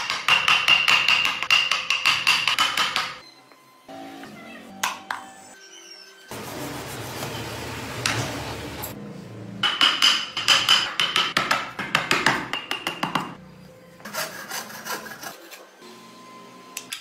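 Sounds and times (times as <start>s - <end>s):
hand tool scraping wood: 14.0s - 15.6s.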